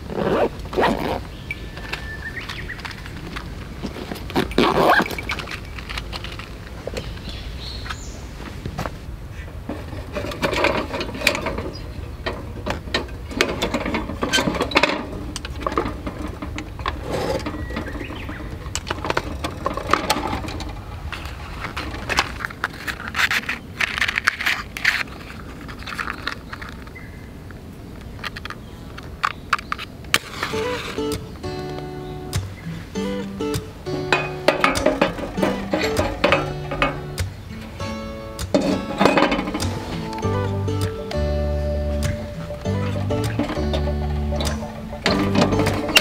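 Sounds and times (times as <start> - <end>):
metal lantern parts clinking and rattling: 2.5 - 6.8, 9.8 - 26.9, 32.4 - 46.0.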